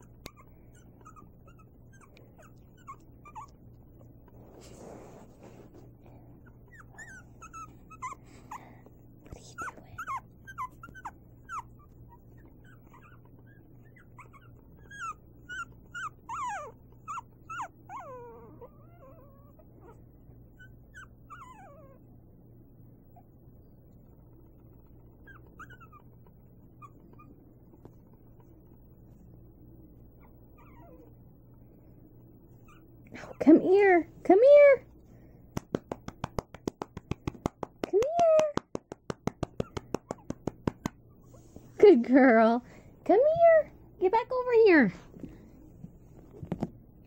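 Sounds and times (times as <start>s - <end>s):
puppies whimpering and squeaking: 0.0s - 4.4s, 6.4s - 8.7s, 9.6s - 22.0s, 24.0s - 29.0s, 30.1s - 31.5s, 32.5s - 33.9s.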